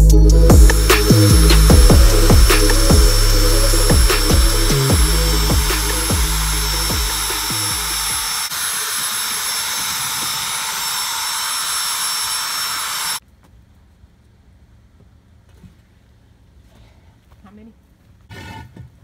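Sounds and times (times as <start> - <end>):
power drill motor whine: 0.5 - 13.2.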